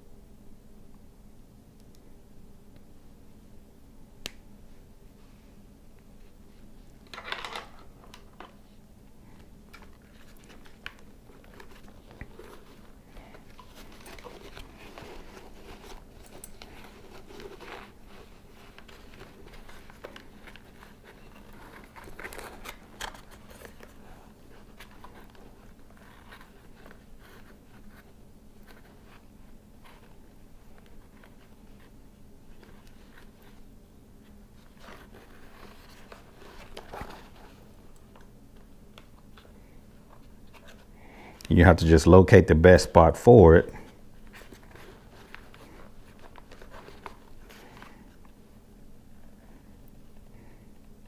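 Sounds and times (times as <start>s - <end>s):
fabric liner rustling: 6.2s - 41.0s, 43.8s - 49.4s.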